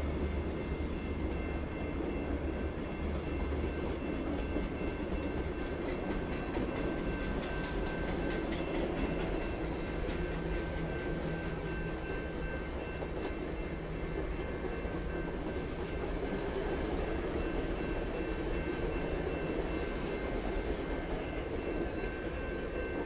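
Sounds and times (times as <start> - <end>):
train wheels rumbling on rails: 0.0 - 23.0
wheels clicking over rail joints: 3.0 - 12.1.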